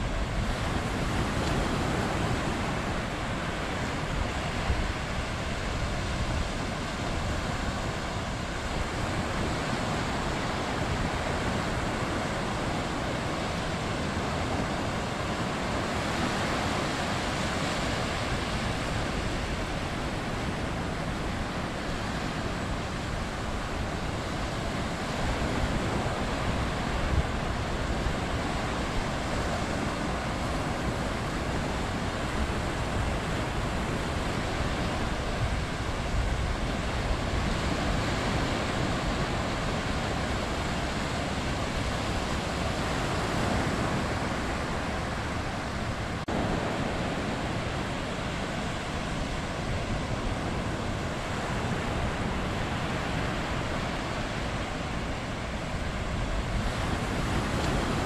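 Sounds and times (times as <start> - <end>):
small waves breaking on beach: 0.0 - 58.0.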